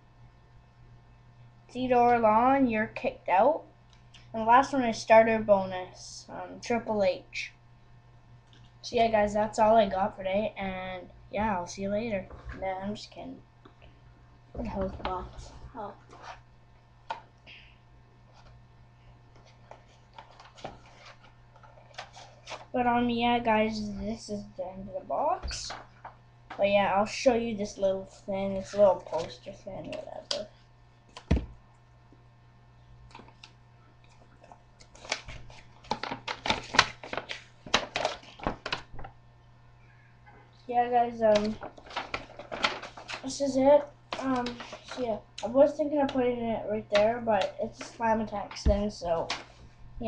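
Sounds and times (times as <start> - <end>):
paper crinkling: 19.3 - 22.7, 25.7 - 26.6, 28.6 - 30.4, 33.1 - 39.1, 41.3 - 43.5, 44.1 - 45.1
cardboard rustling: 19.4 - 22.7, 34.9 - 39.1, 41.2 - 43.5.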